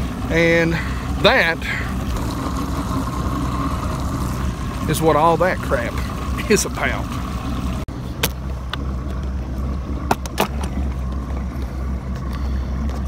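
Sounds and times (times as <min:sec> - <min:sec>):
boat motor humming: 0:00.0 - 0:13.0
sharp clicks and knocks: 0:10.1 - 0:11.2.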